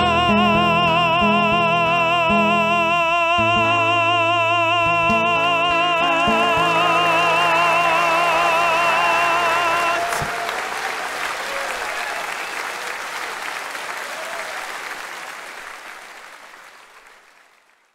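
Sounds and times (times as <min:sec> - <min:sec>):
person singing with vibrato: 0:00.0 - 0:10.4
audience applauding: 0:05.8 - 0:17.9.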